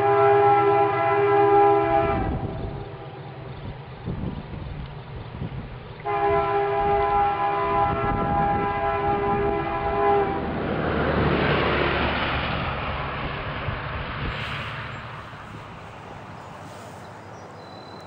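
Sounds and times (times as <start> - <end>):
locomotive air horn chord: 0.0 - 3.3, 6.0 - 10.5
train running rumble: 0.0 - 18.0.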